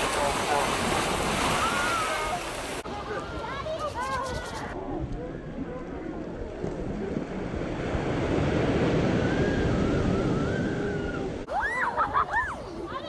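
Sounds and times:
ocean surf breaking: 0:00.0 - 0:03.8, 0:07.0 - 0:13.0
wind on microphone: 0:03.2 - 0:11.5.

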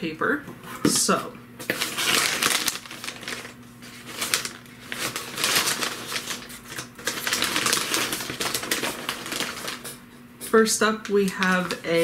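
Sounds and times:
wrapping paper rustling: 0:01.6 - 0:10.0, 0:11.0 - 0:12.0.

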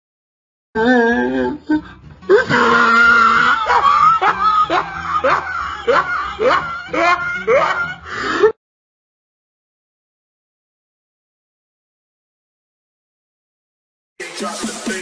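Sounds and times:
high voice screaming: 0:02.3 - 0:04.2.

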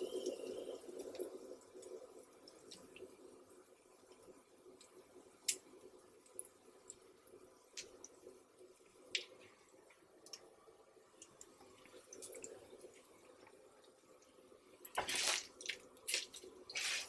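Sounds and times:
fat popping and crackling: 0:14.8 - 0:17.0.

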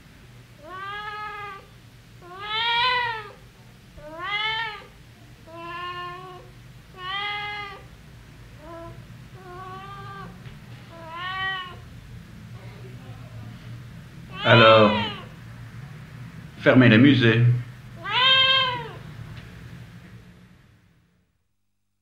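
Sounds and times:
low steady hum: 0:00.0 - 0:21.3
cat meowing: 0:00.6 - 0:03.4, 0:04.0 - 0:04.9, 0:05.5 - 0:07.9, 0:08.6 - 0:11.8, 0:14.3 - 0:15.4, 0:18.0 - 0:19.1.

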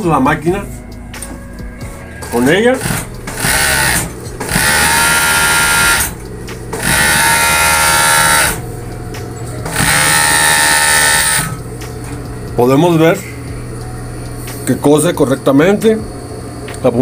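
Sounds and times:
overlock sewing machine running: 0:02.8 - 0:08.6, 0:09.6 - 0:11.6.

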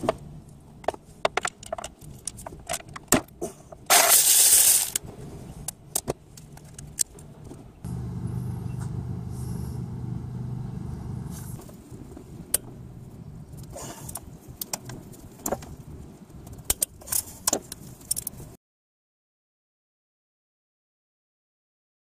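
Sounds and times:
low mechanical hum: 0:07.1 - 0:14.5.

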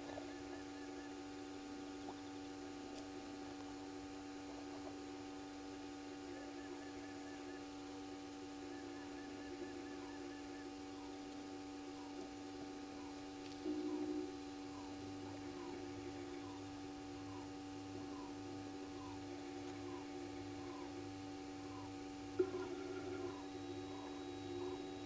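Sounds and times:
steady low hum: 0:00.0 - 0:25.0
rapid chirping trills: 0:06.2 - 0:25.0.

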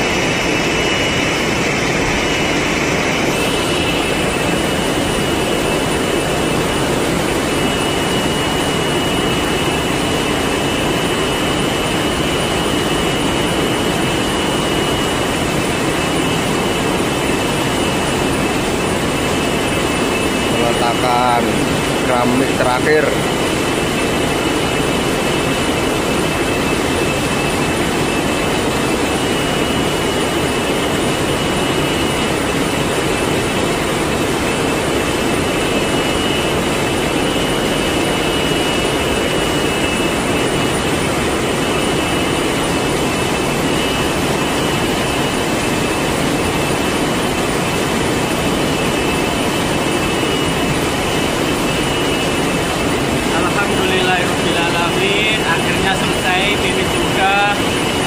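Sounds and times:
machine rushing hum: 0:00.0 - 0:58.0
thin high whine: 0:00.0 - 0:58.0.

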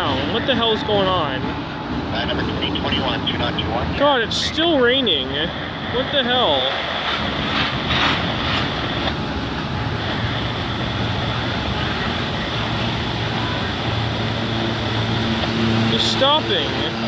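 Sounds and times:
steel wheels rumbling on rail: 0:00.0 - 0:17.0.

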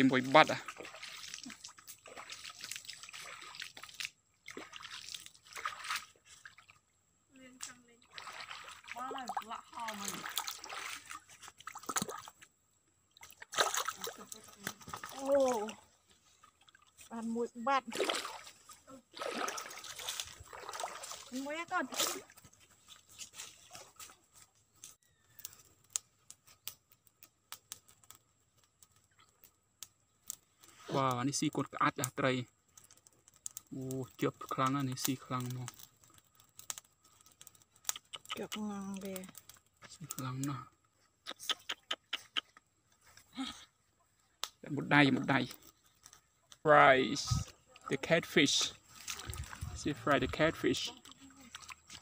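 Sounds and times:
shallow water trickling: 0:00.0 - 0:41.0, 0:42.8 - 0:52.0
little ticks: 0:32.0 - 0:40.2.

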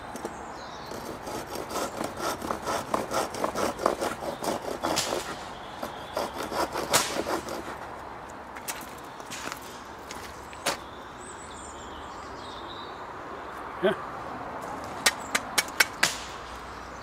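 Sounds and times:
saw teeth cutting wood: 0:00.8 - 0:07.8.

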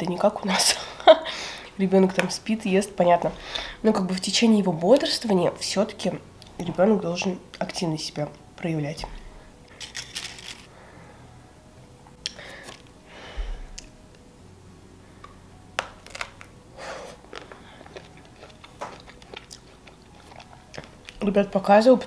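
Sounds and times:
biting and chewing: 0:15.8 - 0:21.3.

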